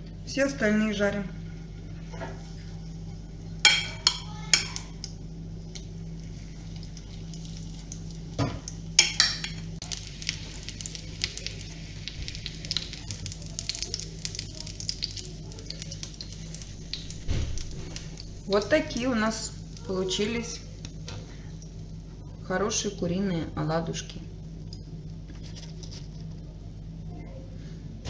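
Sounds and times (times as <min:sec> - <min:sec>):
low hum: 0:00.0 - 0:28.0
oil sizzling and crackling: 0:01.3 - 0:22.4.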